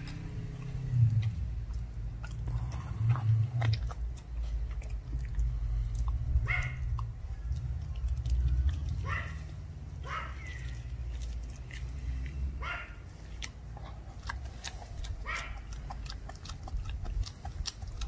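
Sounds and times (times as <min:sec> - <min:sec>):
low rumble: 0:00.0 - 0:10.0
puppy crunching bone: 0:00.0 - 0:18.0.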